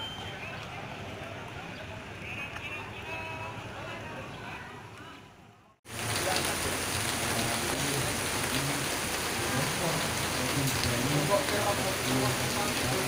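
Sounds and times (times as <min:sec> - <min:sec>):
rain pouring: 0:05.9 - 0:13.0.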